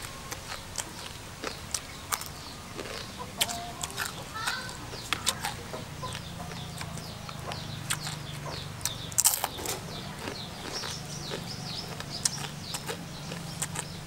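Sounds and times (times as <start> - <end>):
birds chirping: 0.0 - 14.0
crunchy food being chewed: 0.0 - 14.0
steady low hum: 0.0 - 14.0.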